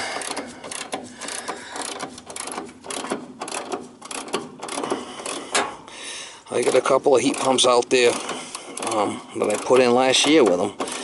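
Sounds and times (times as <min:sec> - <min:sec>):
ratchet wrench clicking: 0:00.1 - 0:05.5, 0:07.2 - 0:11.0.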